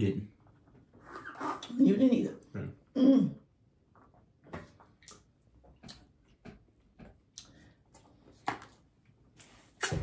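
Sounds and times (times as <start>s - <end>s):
quiet eating clicks and smacks: 3.8s - 9.1s.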